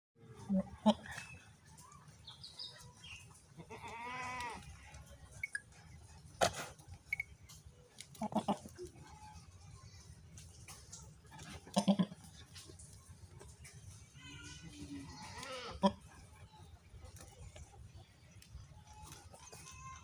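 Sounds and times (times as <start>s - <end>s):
goat bleating: 3.6s - 4.9s, 8.1s - 9.4s, 11.4s - 12.3s, 14.2s - 16.1s.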